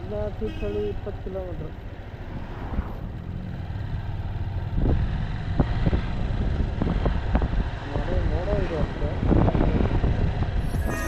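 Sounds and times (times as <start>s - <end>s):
motorcycle engine running: 0.0s - 2.3s, 3.0s - 9.2s
wind and road noise: 0.0s - 11.0s.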